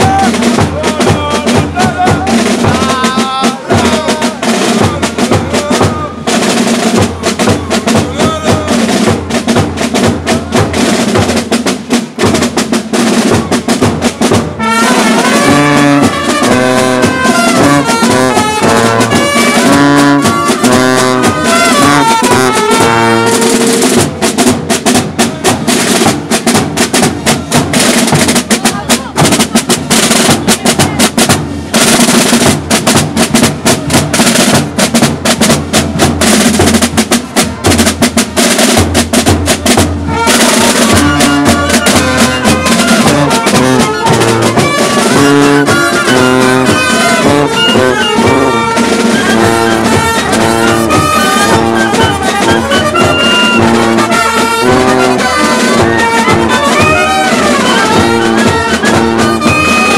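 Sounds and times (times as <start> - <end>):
marching drums beating: 0.0 - 59.9
brass tune on trumpet and sousaphone: 14.5 - 24.1, 40.0 - 59.9.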